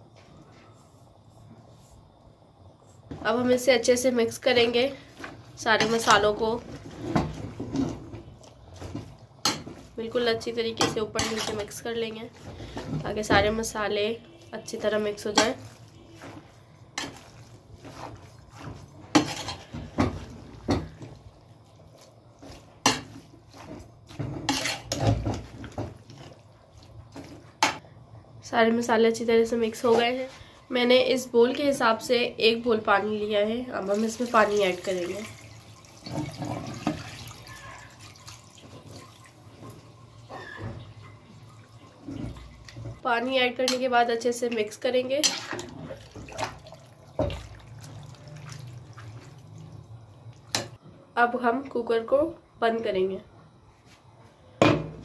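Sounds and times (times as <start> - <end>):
wet shuffling of food: 14.8 - 27.6, 45.5 - 50.5
water pouring and splashing onto food: 33.8 - 40.2, 41.2 - 43.0, 45.4 - 50.7.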